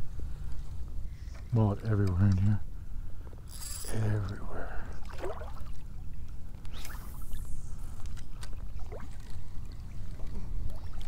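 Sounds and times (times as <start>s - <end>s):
water sloshing around wading legs: 5.0s - 7.0s, 8.4s - 11.0s
brief swish: 6.7s - 7.6s.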